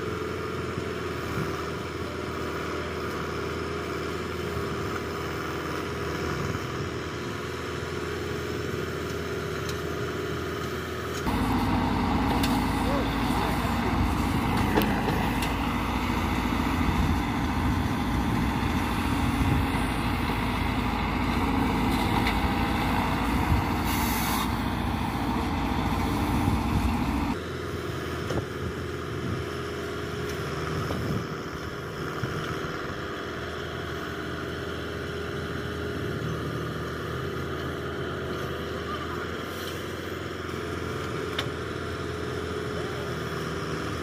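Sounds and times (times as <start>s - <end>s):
tractor diesel engine under load: 0.0s - 44.0s
brief hiss: 23.9s - 24.5s.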